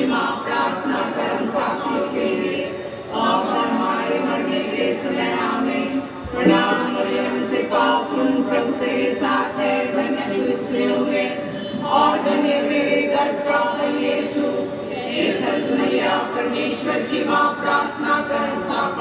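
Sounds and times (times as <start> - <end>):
group singing a hymn: 0.0 - 19.0
low thump: 6.3 - 6.9.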